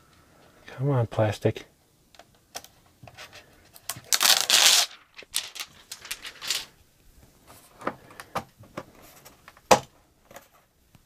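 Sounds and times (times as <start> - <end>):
plastic film peeling: 3.8 - 6.6
plastic crackles and clicks: 3.8 - 6.7.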